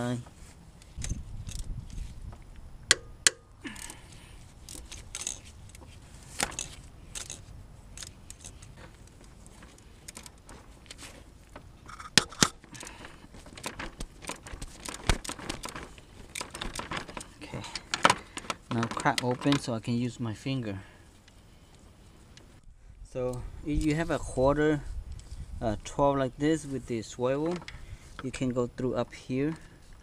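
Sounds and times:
rustling: 0.0s - 2.5s, 3.6s - 20.0s.

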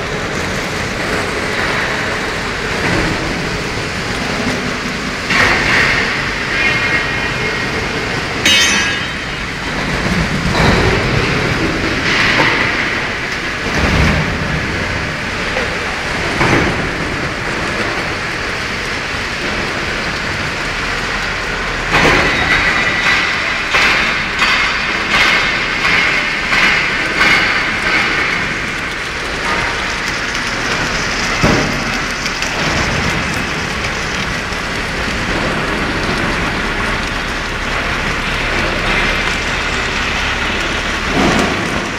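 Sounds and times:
sharp knocks: 8.4s - 13.1s.

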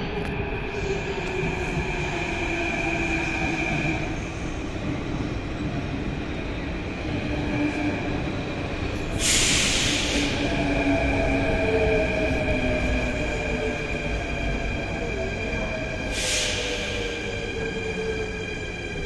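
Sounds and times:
train pulling into station: 0.0s - 19.0s
loud hiss of air: 9.1s - 10.5s, 16.1s - 17.2s.

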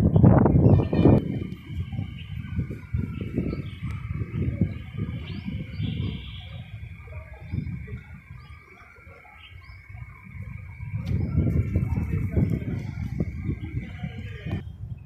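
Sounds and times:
faint bird chirps: 0.2s - 12.0s.

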